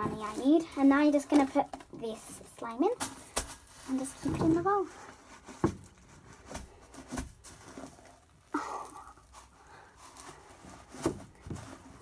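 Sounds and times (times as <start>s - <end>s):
slime squished with foam beads: 7.2s - 11.2s.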